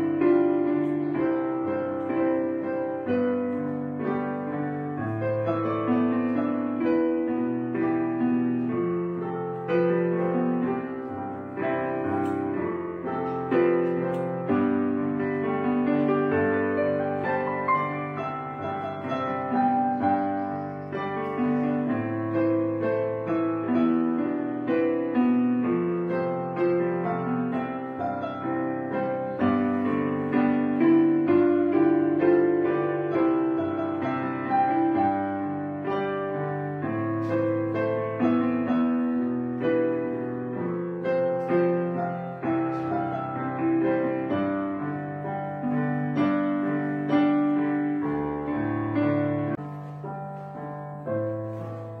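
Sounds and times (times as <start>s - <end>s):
slow gentle piano music: 0.0s - 52.0s.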